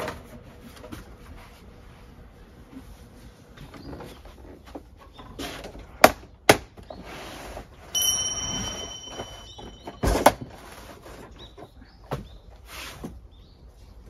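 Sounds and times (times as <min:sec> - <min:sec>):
steady high-pitched tone: 0:08.0 - 0:10.4.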